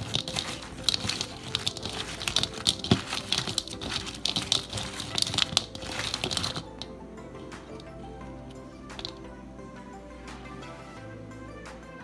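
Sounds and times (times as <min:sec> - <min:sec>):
fries rustling in a bowl: 0:00.0 - 0:06.9.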